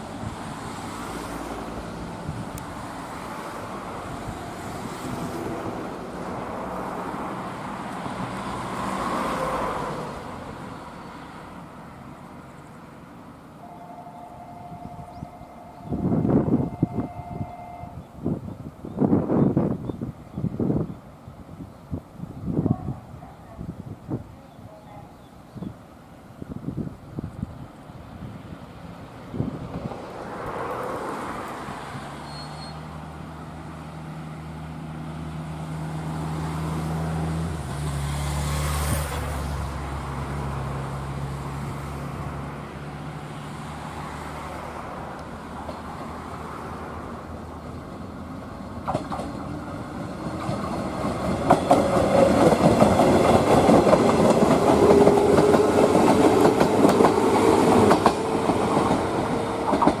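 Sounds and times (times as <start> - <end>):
train whine: 0.0 - 19.8, 39.0 - 60.0
train low hum: 0.0 - 60.0
train wheels clattering over rail joints: 48.7 - 60.0.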